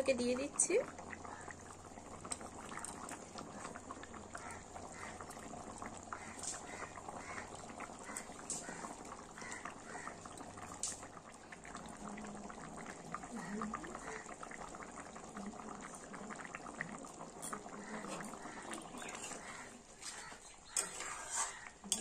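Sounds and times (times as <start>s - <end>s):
curry bubbling and popping: 0.0s - 22.0s.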